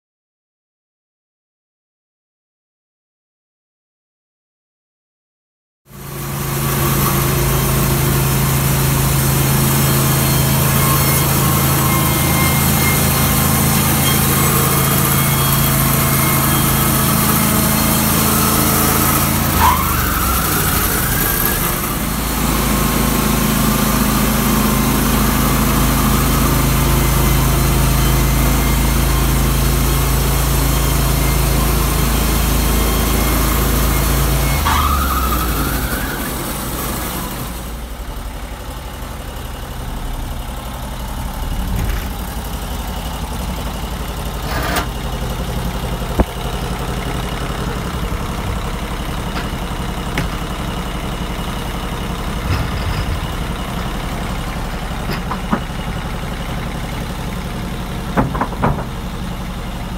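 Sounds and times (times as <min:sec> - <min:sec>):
sawmill engine running: 0:05.9 - 0:59.9
brief rising whine: 0:41.1 - 0:43.4.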